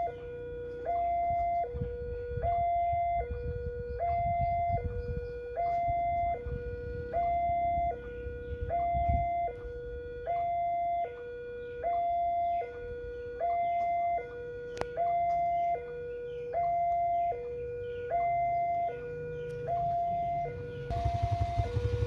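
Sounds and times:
level crossing warning alarm: 0.0 - 22.0
low rumble: 20.9 - 22.0.

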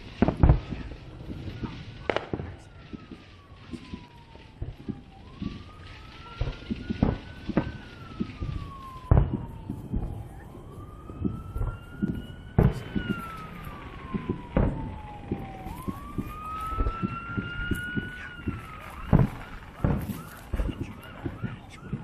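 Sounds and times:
fireworks popping and banging: 0.0 - 22.0
wailing siren: 0.0 - 22.0.

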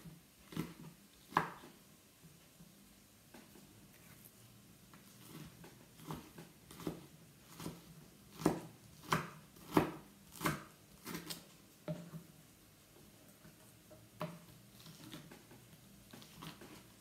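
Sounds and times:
knife chopping on wooden board: 5.2 - 12.2.

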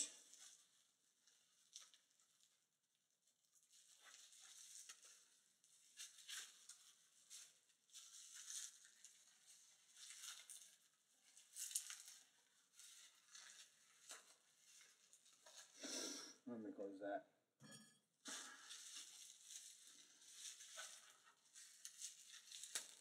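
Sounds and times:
plastic wrap crinkling: 0.1 - 15.8, 18.3 - 23.0.

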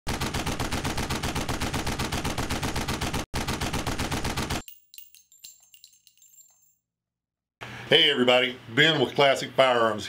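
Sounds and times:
automatic gunfire: 0.1 - 4.6
faint metallic clinks: 4.6 - 6.9.

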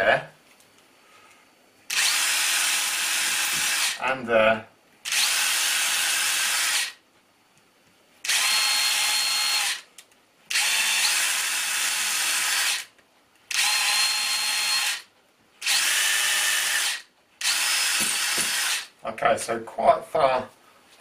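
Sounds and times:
cordless drill drilling into wall: 1.9 - 4.0, 5.1 - 7.0, 8.2 - 9.9, 10.5 - 12.9, 13.5 - 18.9.

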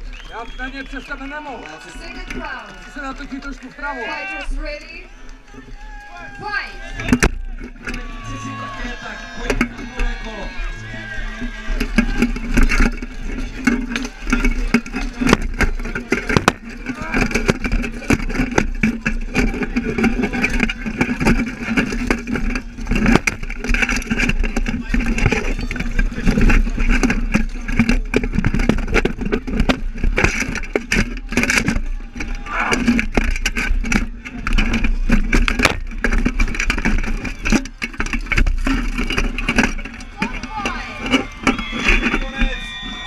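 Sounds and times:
crowd shouting: 0.0 - 18.2, 30.5 - 33.2, 37.0 - 43.0.

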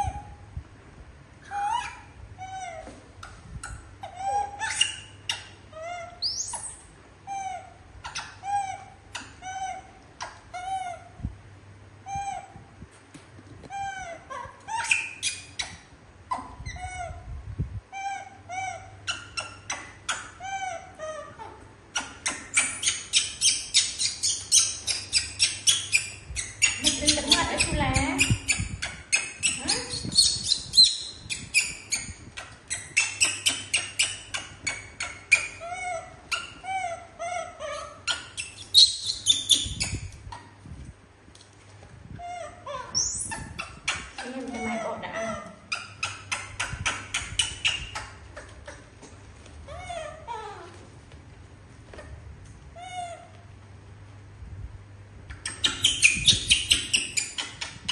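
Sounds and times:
monkeys squeaking: 1.4 - 11.1, 13.8 - 17.2, 18.0 - 40.6, 42.2 - 48.9, 49.7 - 50.8, 55.3 - 57.9.

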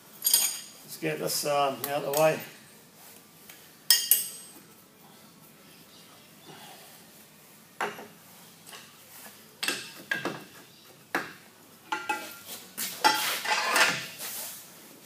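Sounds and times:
steel tools clanking on metal: 0.2 - 0.7, 3.9 - 4.5, 11.9 - 12.4, 13.0 - 14.1.

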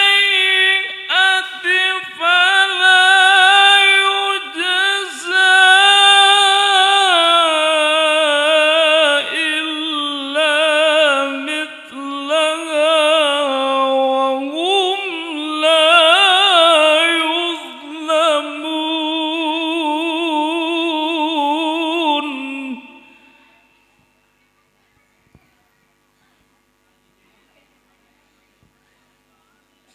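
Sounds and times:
man reciting melodically: 0.0 - 23.5.

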